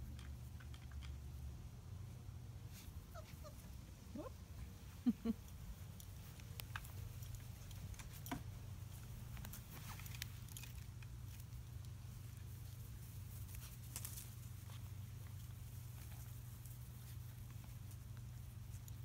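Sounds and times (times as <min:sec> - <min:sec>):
rustles and paw clicks: 0:05.5 - 0:19.0.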